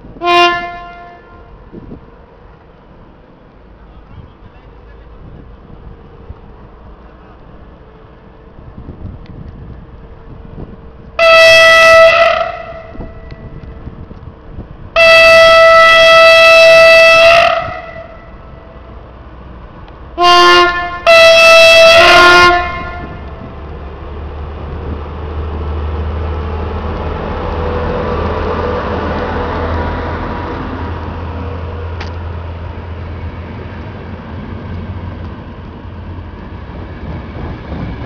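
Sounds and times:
train rumbling past: 0.0s - 38.0s
locomotive air horn blasts: 0.2s - 1.6s, 11.2s - 13.6s, 15.0s - 18.8s, 20.2s - 23.5s.

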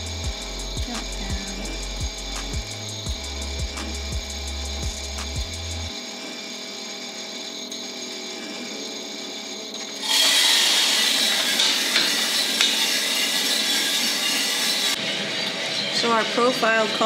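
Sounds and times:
coffee roaster running: 0.0s - 17.0s
coffee beans rattling in drum: 10.0s - 15.0s.

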